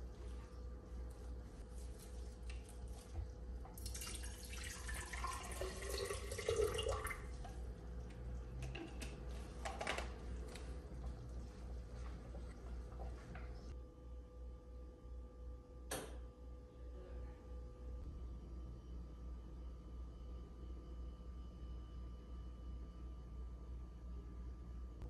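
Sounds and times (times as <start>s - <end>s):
water pouring into glass vase: 3.7s - 7.6s.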